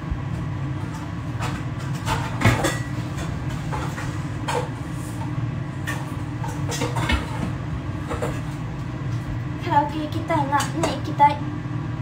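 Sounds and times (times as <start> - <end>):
steady low hum: 0.0 - 12.0
kitchenware knocking and clattering: 1.4 - 3.9, 6.5 - 7.5.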